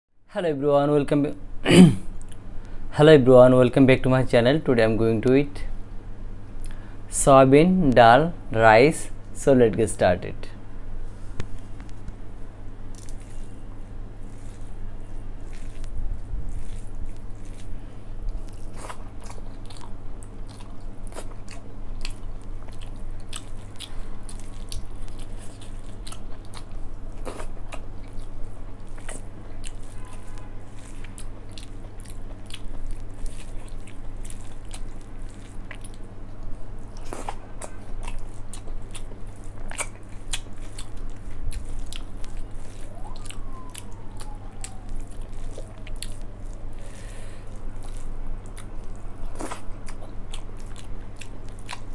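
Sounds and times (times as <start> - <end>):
person chewing: 6.6 - 6.9, 11.0 - 51.9
fingers mixing food on steel plate: 14.2 - 19.2
wet mouth clicks: 30.9 - 51.9.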